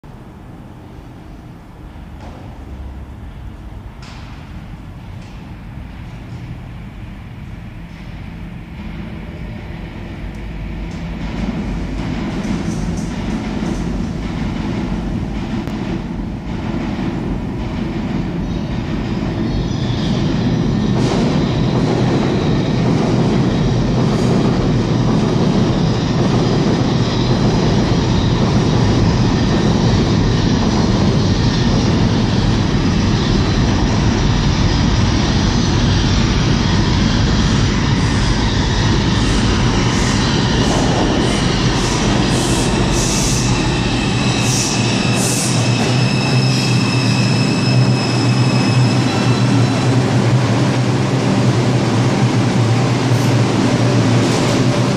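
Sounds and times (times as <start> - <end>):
subway train rumble: 0.0 - 54.9
high-pitched wheel squeals: 42.6 - 50.0.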